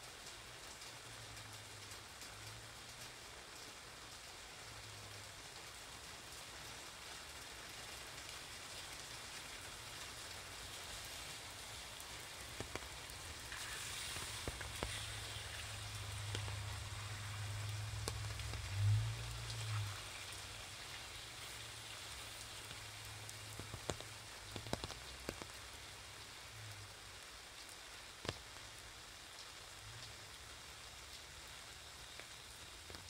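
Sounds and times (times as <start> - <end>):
rain pattering on umbrella: 0.0 - 33.0
single louder raindrops: 7.8 - 33.0.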